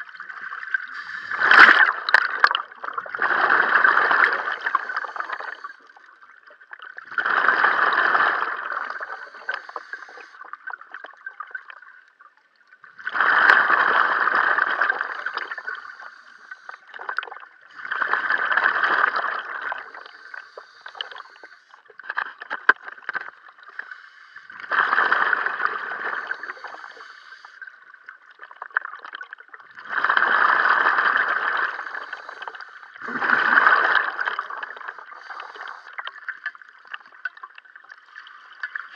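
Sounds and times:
exhaled bubbles underwater: 0.0s - 38.9s
regulator inhalations: 0.9s - 1.8s, 4.6s - 6.0s, 8.7s - 10.4s, 15.2s - 16.9s, 19.8s - 21.8s, 23.8s - 24.7s, 26.0s - 27.7s, 31.7s - 33.3s, 34.8s - 36.0s.

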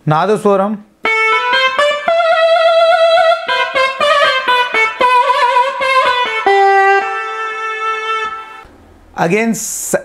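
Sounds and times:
keyboard playing reed melody: 1.0s - 8.6s.

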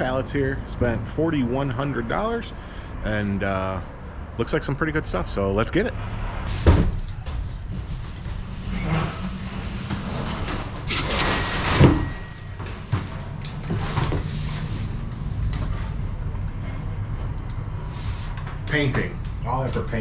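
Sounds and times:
steady low rumble: 6.3s - 10.9s.

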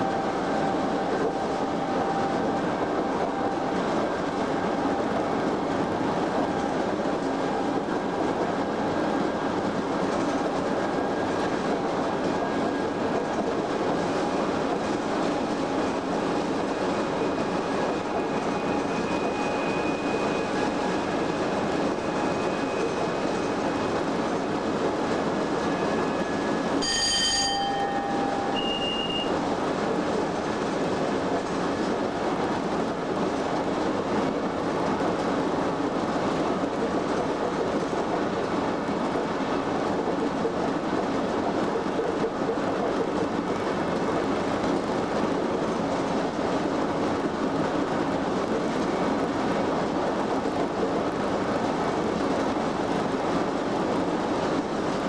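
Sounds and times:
train cab running noise: 0.0s - 55.0s
bell-like ding: 26.8s - 29.3s
high beep: 26.8s - 29.4s.

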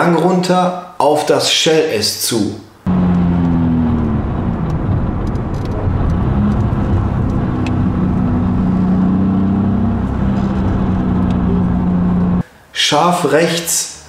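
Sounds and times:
car engine inside cabin: 2.9s - 12.4s.

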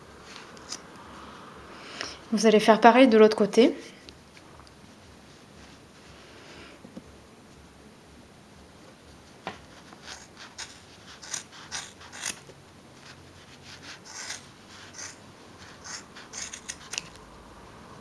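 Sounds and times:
scissors snipping yarn: 9.9s - 12.4s, 13.0s - 17.2s.

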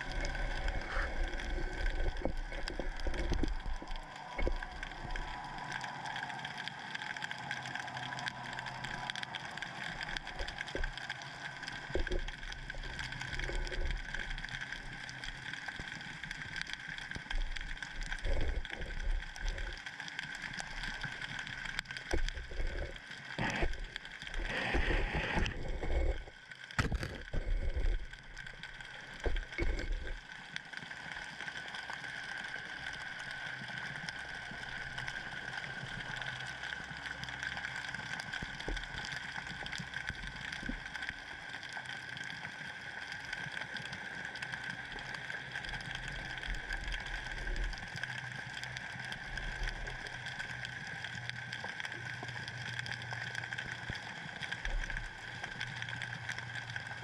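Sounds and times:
muffled underwater hiss: 0.0s - 57.0s.

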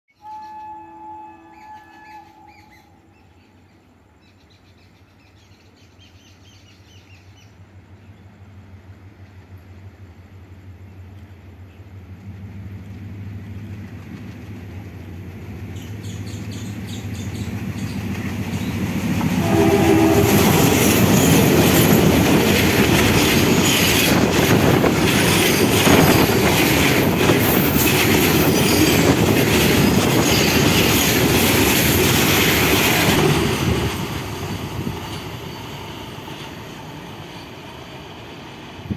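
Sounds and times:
train horn: 0.1s - 3.3s, 19.2s - 22.0s
diesel locomotive engines chugging: 7.2s - 38.9s
train wheels clacking on rails: 12.2s - 37.8s.

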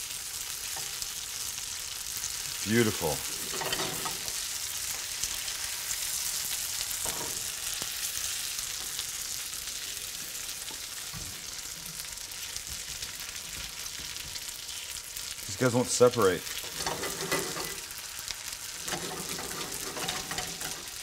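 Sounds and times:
ravioli sizzling in butter: 0.0s - 21.0s
utensil scraping a pan: 3.2s - 4.5s, 16.6s - 18.0s, 18.7s - 21.0s.

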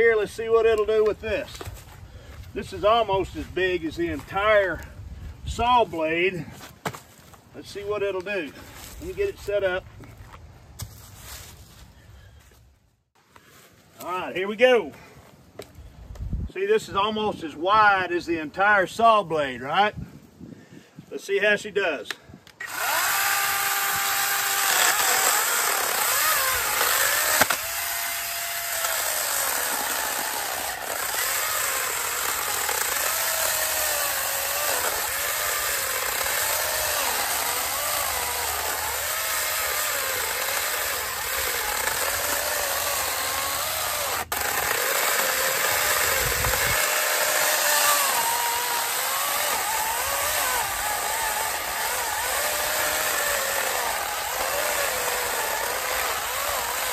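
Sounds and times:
electric chainsaw cutting log: 22.6s - 56.9s.

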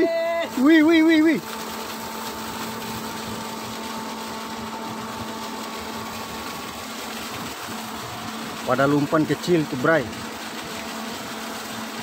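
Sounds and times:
high machinery whine: 0.0s - 12.0s.

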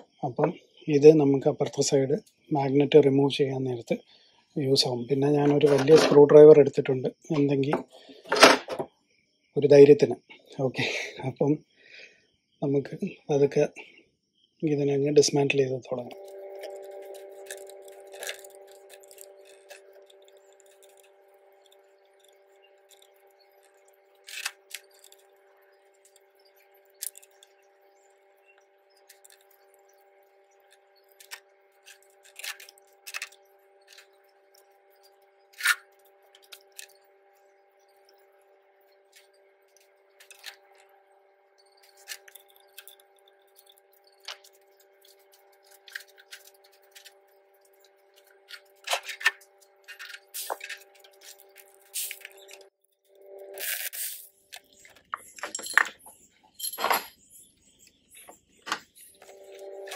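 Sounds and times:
steady hum: 16.0s - 55.8s, 58.7s - 59.9s.

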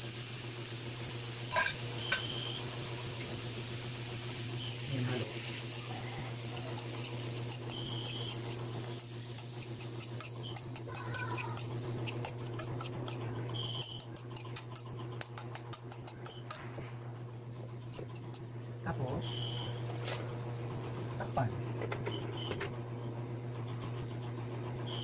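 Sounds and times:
metal spoon scraping a wok: 1.5s - 2.4s, 5.3s - 16.7s, 17.9s - 18.4s.

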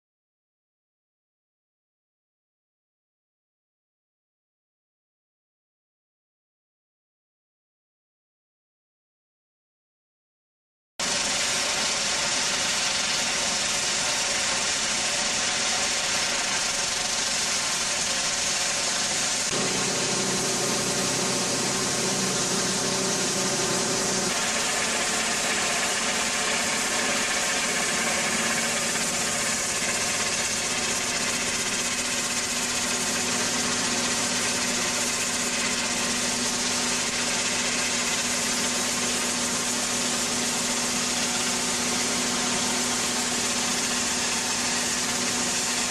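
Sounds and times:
high-pressure water jet hissing: 11.0s - 45.9s
machine drone: 11.0s - 45.9s.

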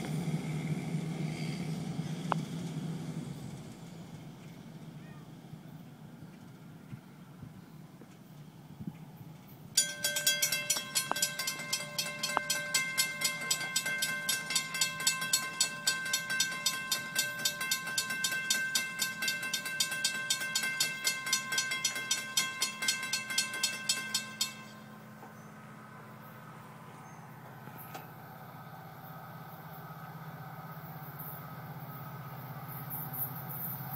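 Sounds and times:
railroad crossing bell ringing: 9.7s - 27.2s.

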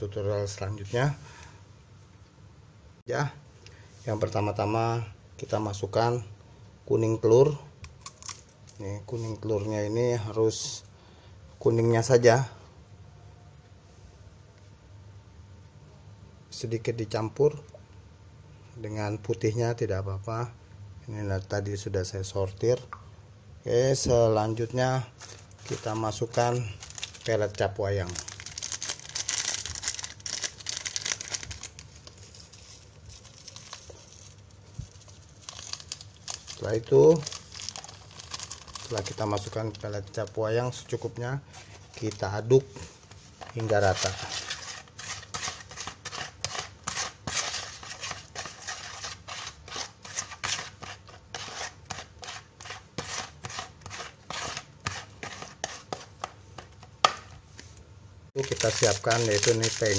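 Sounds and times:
plastic packet crinkling: 8.0s - 8.8s, 25.2s - 40.4s, 58.4s - 59.9s
plastic spoon scraping a plastic basin: 43.1s - 56.9s.

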